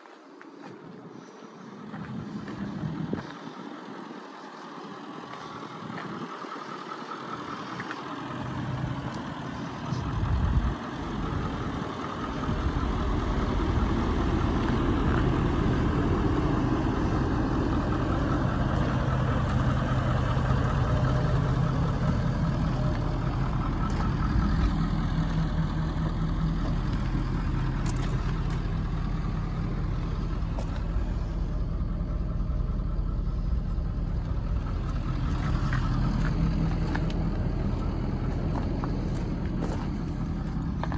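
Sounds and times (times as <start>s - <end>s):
truck engine idling: 0.0s - 40.9s
low hum: 0.6s - 40.9s.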